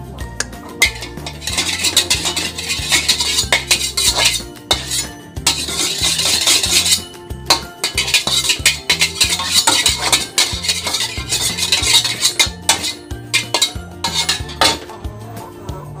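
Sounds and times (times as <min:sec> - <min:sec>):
background music: 0:00.0 - 0:16.0
metal utensil stirring in bowl: 0:00.5 - 0:15.1.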